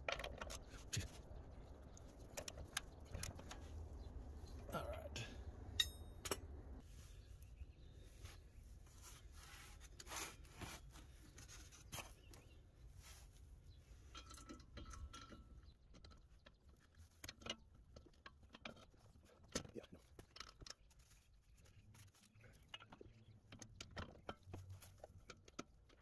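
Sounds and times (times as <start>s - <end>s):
metal on metal clink: 5.7s - 6.8s.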